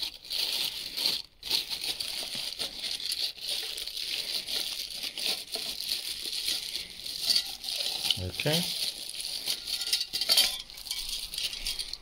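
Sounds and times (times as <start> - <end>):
plastic wrapping crinkling: 0.0 - 12.0.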